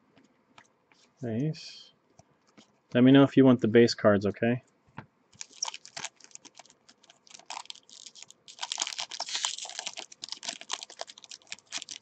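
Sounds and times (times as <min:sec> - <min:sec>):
card wrapper crinkling: 0:05.4 - 0:12.0.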